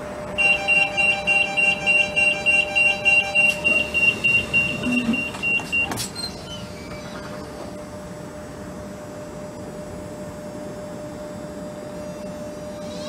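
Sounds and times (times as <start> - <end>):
high electronic warning beep: 0.4 - 6.0.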